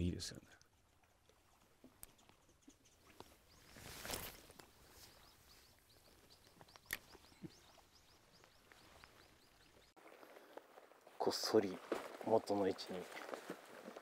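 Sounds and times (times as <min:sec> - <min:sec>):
faint high bird chirps: 0:02.0 - 0:10.0
soft rustle: 0:03.0 - 0:06.7, 0:08.4 - 0:14.0.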